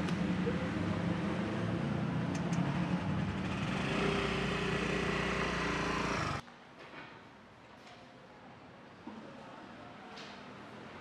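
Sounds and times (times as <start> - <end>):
motor scooter engine revving: 0.2 - 6.4
faint background noise: 6.4 - 11.0.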